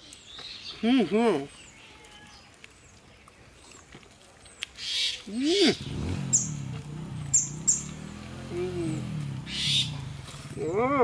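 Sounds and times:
people chewing and smacking: 0:01.5 - 0:04.8
high falling bird chirps: 0:04.8 - 0:06.7, 0:07.3 - 0:08.1, 0:09.0 - 0:10.8.

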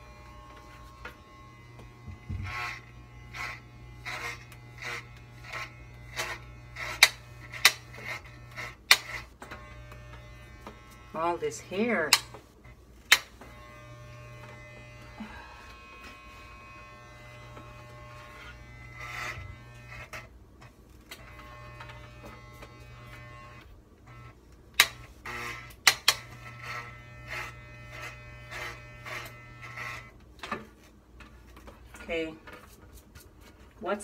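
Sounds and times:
hair clippers buzzing: 0:00.0 - 0:20.3, 0:21.0 - 0:30.2.

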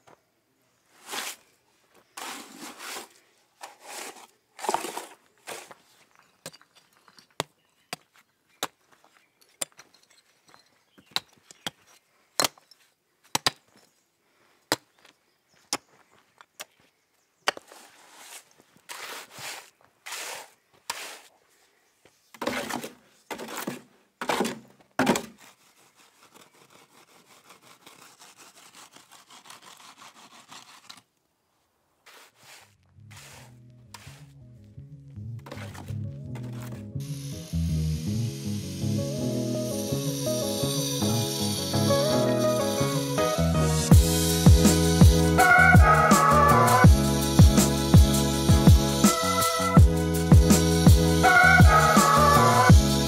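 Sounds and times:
shovel scraping concrete: 0:01.0 - 0:01.5, 0:02.1 - 0:06.0, 0:17.6 - 0:21.4, 0:22.4 - 0:31.0, 0:32.0 - 0:34.3, 0:35.4 - 0:36.8.

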